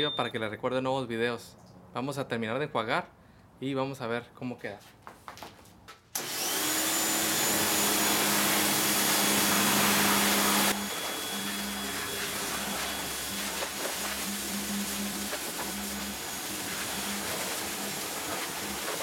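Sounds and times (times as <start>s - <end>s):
motor hum: 6.2s - 19.0s
pressure washer spray hiss: 8.4s - 19.0s.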